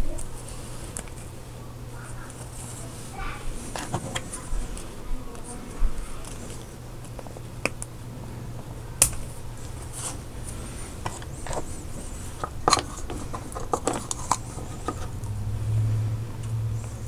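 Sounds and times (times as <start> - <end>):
steady low hum: 0.0 - 17.0
light scraping: 9.7 - 15.2.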